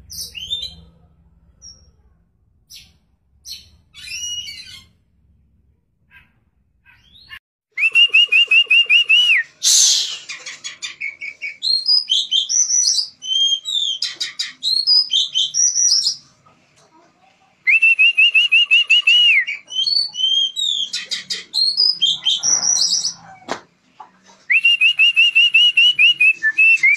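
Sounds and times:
bird singing: 0.0s - 0.9s, 9.7s - 16.2s, 18.6s - 23.2s
brief rush of noise: 9.6s - 10.3s.

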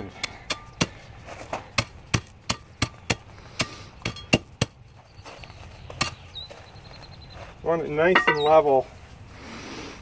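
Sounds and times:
hand tamper pounding gravel: 0.0s - 5.2s, 8.0s - 8.8s.

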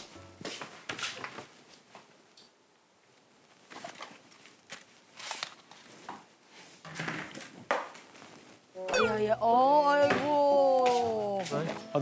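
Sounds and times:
faint clicks and rustles: 3.1s - 8.7s.

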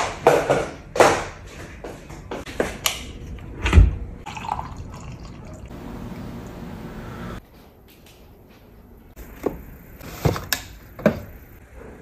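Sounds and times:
liquid pouring into a mug: 4.2s - 5.8s.

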